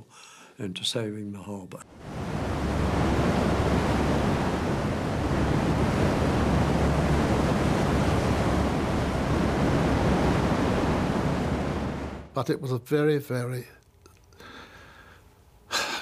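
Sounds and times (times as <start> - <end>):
heavy waves breaking: 1.9 - 12.4
wind blowing: 1.9 - 12.4.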